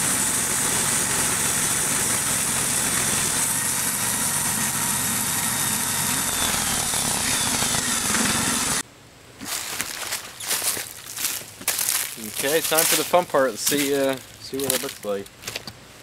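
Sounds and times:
gasoline engine under load: 0:00.0 - 0:08.8
saw blade hissing through wood: 0:00.0 - 0:08.8.

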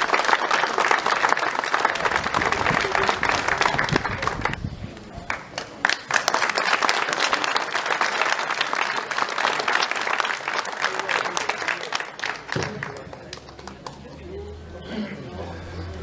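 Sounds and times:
crowd applauding: 0:00.0 - 0:14.4.

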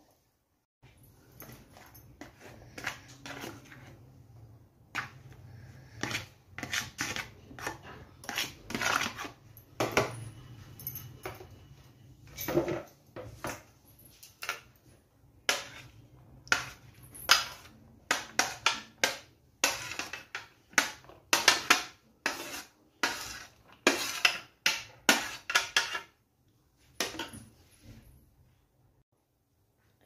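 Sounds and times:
onions scraped into plastic bowl: 0:06.0 - 0:09.4, 0:22.2 - 0:24.5.

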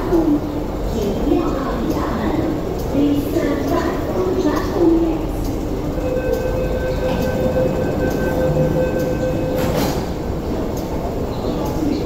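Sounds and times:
train moving off rush: 0:00.0 - 0:12.0
train running rumble: 0:00.0 - 0:12.0
electric train traction whine: 0:05.1 - 0:11.3.

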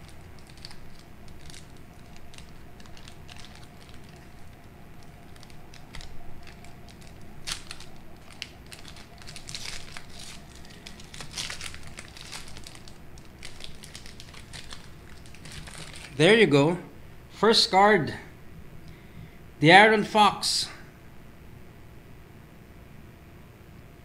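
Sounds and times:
foil wrapper crinkling and tearing: 0:00.0 - 0:16.2.

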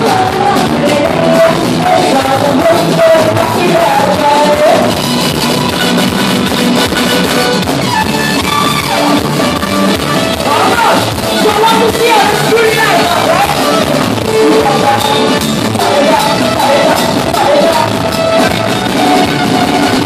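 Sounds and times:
woman singing into microphone: 0:00.0 - 0:05.1, 0:10.5 - 0:18.6
keyboard and drums playing: 0:00.0 - 0:20.0.

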